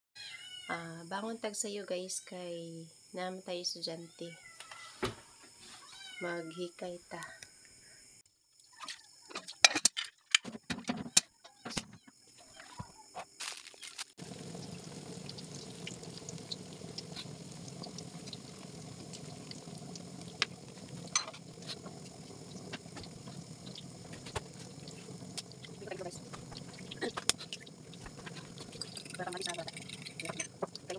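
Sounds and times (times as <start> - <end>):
food sizzling in hot oil: 13.4 - 30.9.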